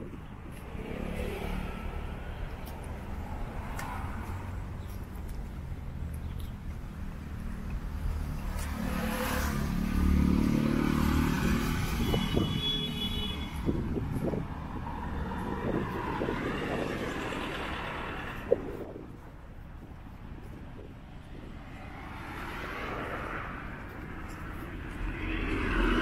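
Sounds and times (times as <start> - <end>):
vehicle driving past: 8.8 - 12.0, 24.7 - 26.0.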